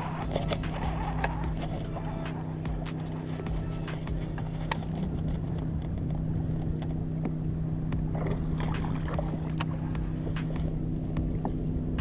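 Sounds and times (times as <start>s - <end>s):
fishing reel clicks: 0.0s - 5.6s
steady electric hum: 0.0s - 12.0s.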